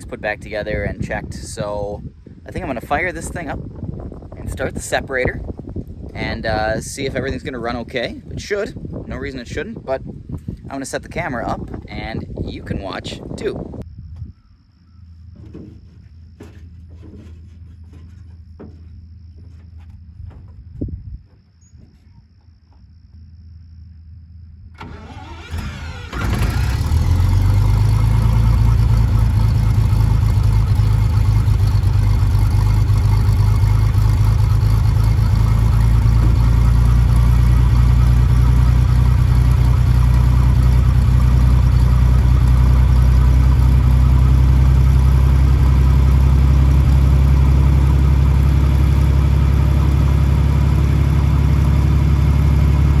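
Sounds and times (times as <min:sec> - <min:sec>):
engine running steadily: 0:15.1 - 0:20.6, 0:24.7 - 0:53.0
engine starter cranking: 0:24.8 - 0:28.6.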